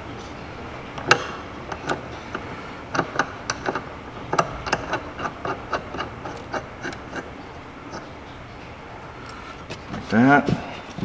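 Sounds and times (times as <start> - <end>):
small metal hardware clicks: 1.0 - 7.3.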